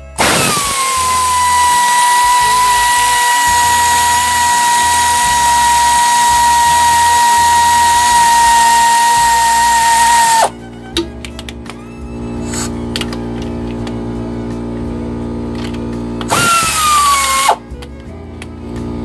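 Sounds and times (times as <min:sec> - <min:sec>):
power tool motor whining: 0:00.0 - 0:10.6, 0:12.1 - 0:13.9, 0:16.2 - 0:17.9.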